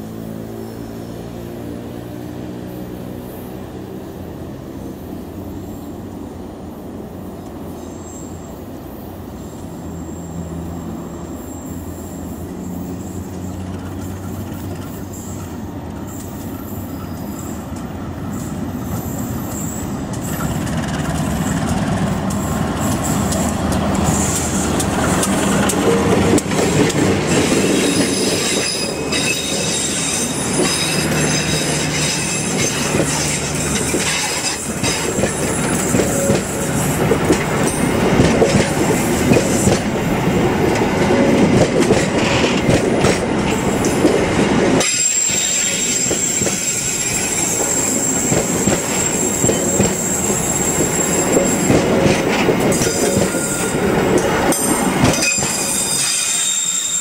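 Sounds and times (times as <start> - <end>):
train wheels rumbling on rails: 0.0 - 57.0
high-pitched wheel squeal: 18.3 - 26.0, 27.2 - 37.0, 44.8 - 51.9, 52.7 - 57.0.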